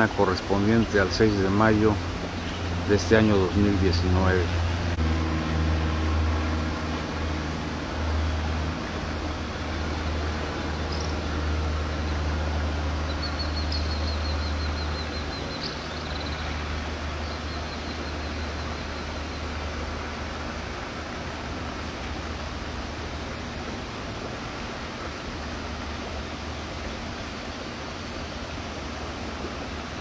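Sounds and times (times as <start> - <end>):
low rumble and hiss: 0.0 - 30.0
bird trilling chirps: 10.8 - 11.2, 13.1 - 16.6.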